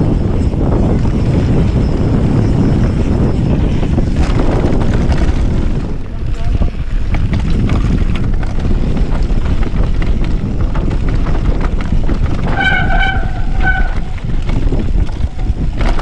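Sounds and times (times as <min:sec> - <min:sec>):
mountain bike clattering: 0:00.0 - 0:16.0
wind buffeting microphone: 0:00.0 - 0:16.0
short steady squeal: 0:12.4 - 0:14.2.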